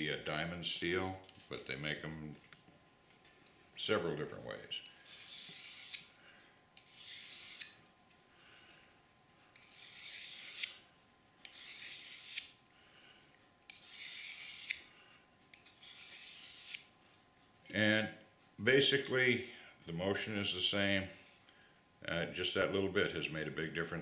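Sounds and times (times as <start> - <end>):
knife rasping on sharpening steel: 5.0 - 6.1, 6.8 - 7.8, 9.6 - 10.8, 11.4 - 12.6, 13.7 - 14.9, 15.6 - 16.9.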